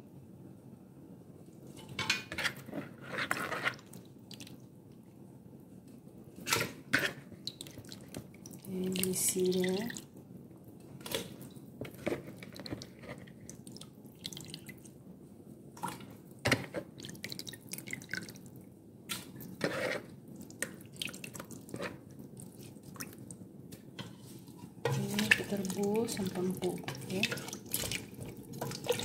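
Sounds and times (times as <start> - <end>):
water splashing in basin: 24.9 - 29.0.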